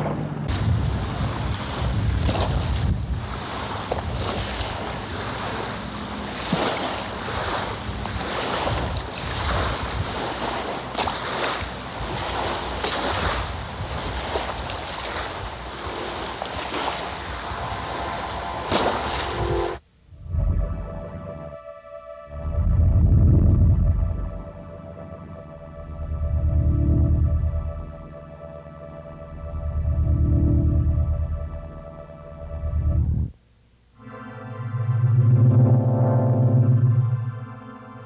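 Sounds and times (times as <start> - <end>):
wash of open water: 0.0 - 19.8
wind buffeting microphone: 0.0 - 20.8, 22.4 - 24.5.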